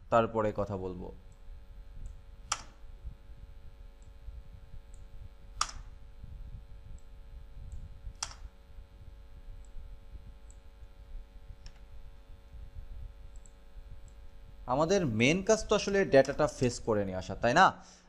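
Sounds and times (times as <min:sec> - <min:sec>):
low background noise: 0:00.0 - 0:18.0
computer key clicks: 0:02.0 - 0:02.8, 0:04.9 - 0:05.9, 0:07.7 - 0:08.5, 0:13.3 - 0:14.2.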